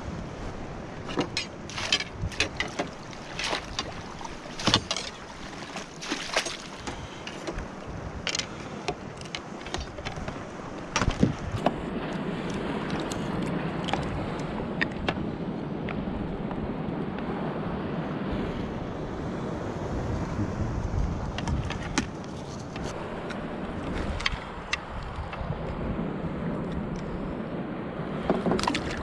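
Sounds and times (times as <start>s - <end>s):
fish splashing at surface: 1.7s - 7.2s.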